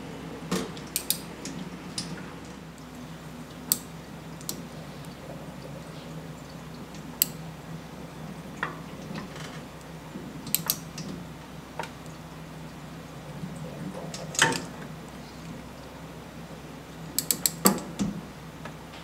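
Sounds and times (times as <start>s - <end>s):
low steady hum: 0.0s - 19.0s
hex driver metallic clicks: 0.9s - 1.2s, 10.5s - 10.8s, 17.2s - 17.8s.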